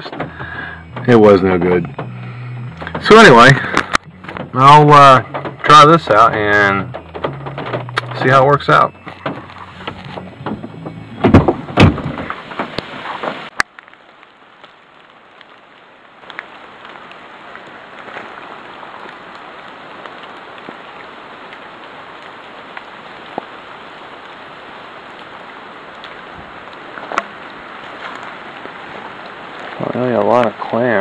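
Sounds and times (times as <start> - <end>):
light rain patter: 0.0 - 31.0
water drips: 12.2 - 31.0.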